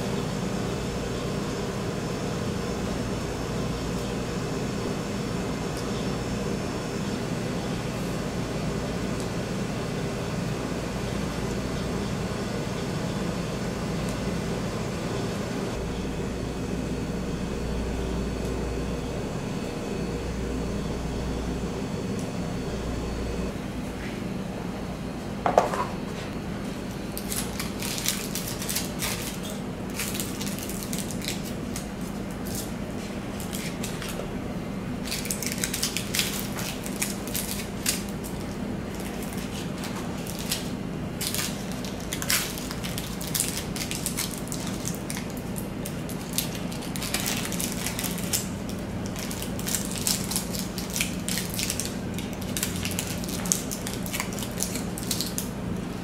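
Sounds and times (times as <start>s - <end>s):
low hum: 14.6s - 24.0s.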